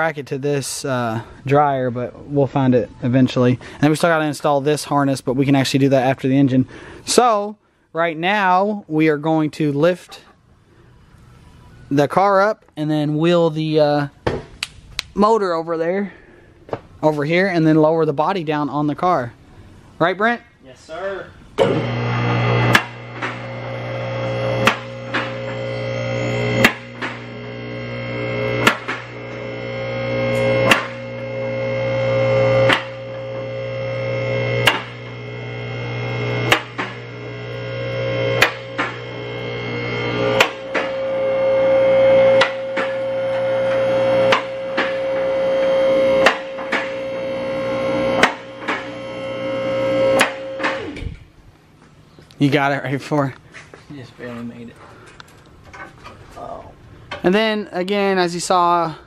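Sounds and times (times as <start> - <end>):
hydraulic pump motor running: 21.6 - 51.2.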